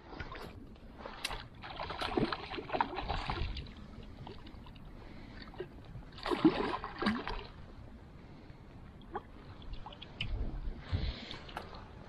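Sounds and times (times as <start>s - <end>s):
fish splashing in water: 6.1s - 7.6s.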